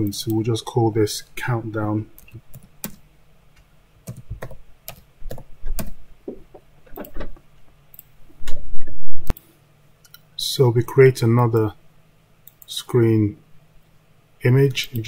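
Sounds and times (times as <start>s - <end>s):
keyboard typing: 2.2s - 3.0s, 4.0s - 6.0s.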